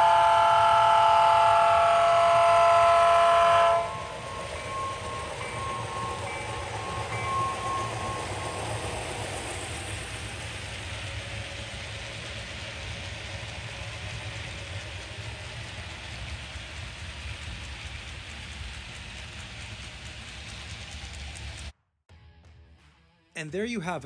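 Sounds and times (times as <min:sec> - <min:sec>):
model train wheels rattling: 0:04.0 - 0:21.7.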